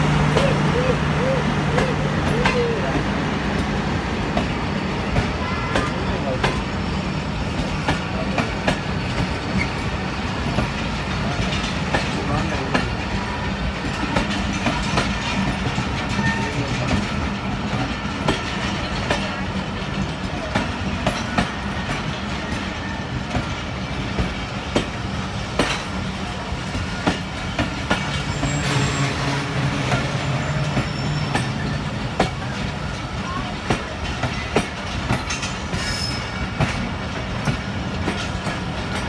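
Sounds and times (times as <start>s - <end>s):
train coaches rumbling: 0.0s - 39.0s
wheels clacking over rail joints: 0.0s - 39.0s.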